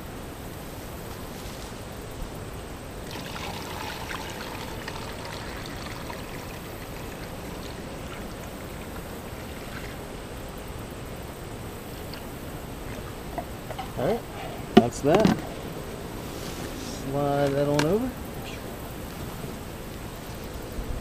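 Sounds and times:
liquid pouring from a jug: 3.0s - 10.3s.

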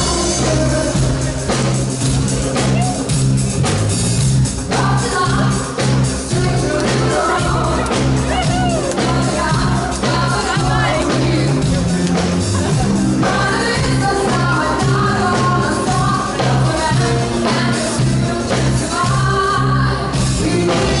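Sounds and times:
dance music with singing: 4.6s - 21.0s.

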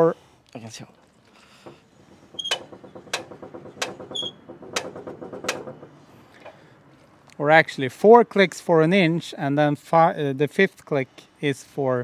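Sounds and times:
ratcheting creak: 1.5s - 6.6s
crank clicking: 1.6s - 6.6s.

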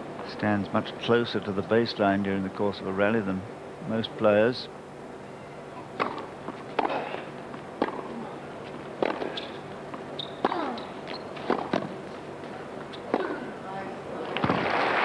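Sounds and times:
racquet striking tennis ball: 6.0s - 8.2s, 9.0s - 12.0s
tennis ball bouncing on court: 6.0s - 8.2s, 9.0s - 12.0s.

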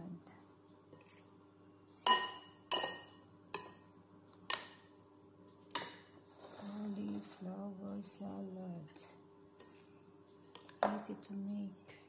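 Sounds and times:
metal spoon clinking against bowl: 2.0s - 3.8s.

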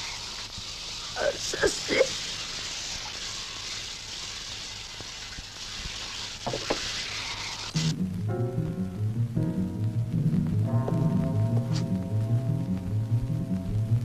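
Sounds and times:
shower spray hissing: 0.0s - 8.0s
low music: 7.8s - 14.0s.

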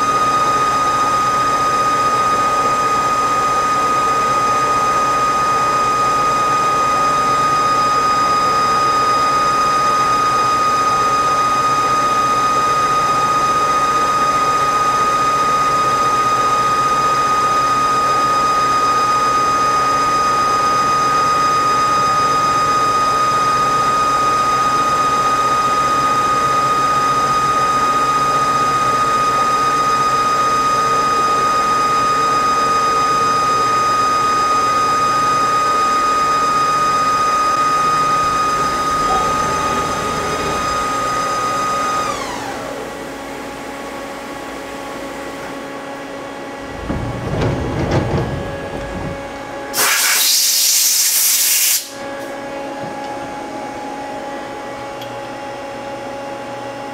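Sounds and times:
high spindle whine: 0.0s - 51.1s
machine noise: 36.4s - 52.3s
low thumps: 46.6s - 49.6s.

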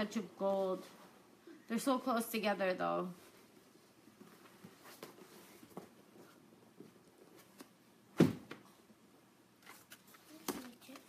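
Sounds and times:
sharp thump: 8.2s - 8.6s.

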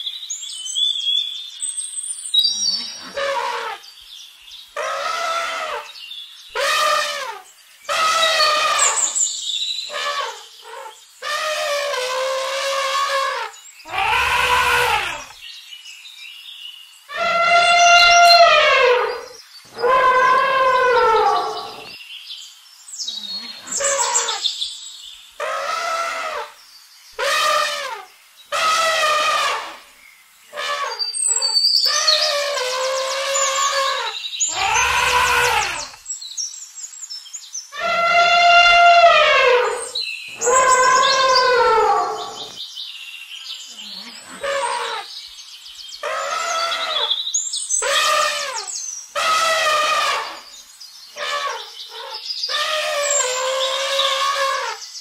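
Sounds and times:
elephant trumpeting: 3.0s - 3.8s, 4.8s - 5.9s, 6.6s - 9.2s, 9.9s - 15.4s, 17.1s - 22.0s, 23.6s - 24.4s, 25.4s - 26.6s, 27.2s - 29.8s, 30.5s - 31.0s, 31.9s - 36.0s, 37.8s - 42.6s, 44.2s - 45.1s, 46.0s - 47.2s, 47.8s - 50.5s, 51.2s - 54.8s.

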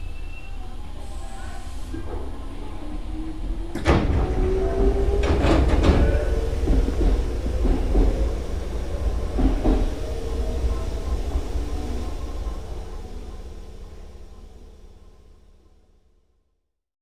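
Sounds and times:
electric train running: 2.0s - 15.7s
wheels clacking over rail joints: 3.7s - 10.7s.

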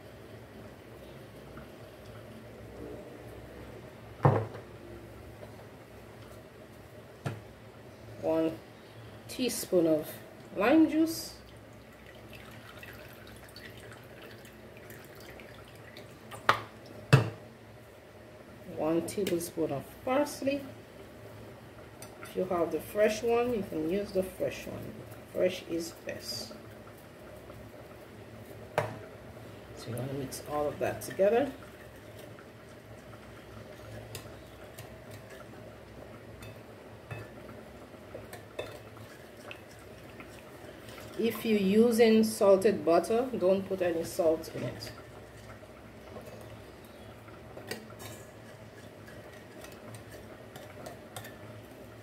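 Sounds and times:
faint liquid drips: 11.4s - 17.0s, 38.2s - 41.4s.

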